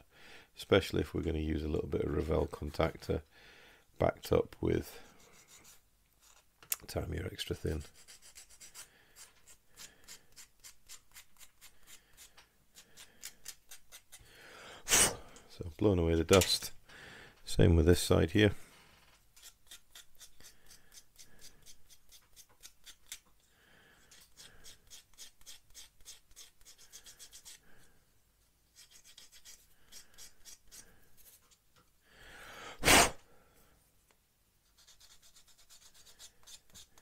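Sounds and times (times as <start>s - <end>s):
sanding stick scratching plastic: 7.8s - 12.0s, 24.1s - 27.6s, 28.8s - 30.8s, 34.7s - 37.0s
puff of breath: 14.3s - 15.5s, 32.1s - 33.7s.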